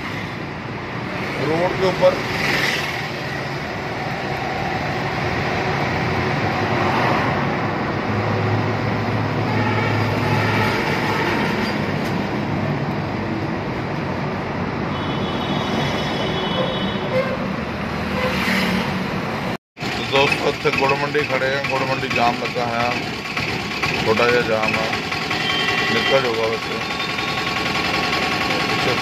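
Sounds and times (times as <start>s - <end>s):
auto-rickshaw engine running: 0.0s - 6.7s, 19.8s - 29.0s
road and wind noise: 0.0s - 29.0s.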